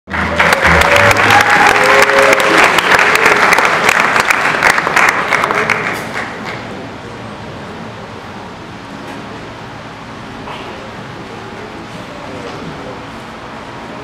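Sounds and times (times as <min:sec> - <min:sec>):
audience applauding: 0:00.1 - 0:06.6.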